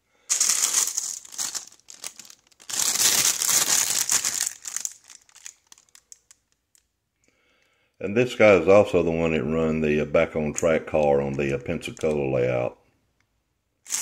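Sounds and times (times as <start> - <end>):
plastic bags crinkling: 0.2 - 6.8, 10.5 - 12.5.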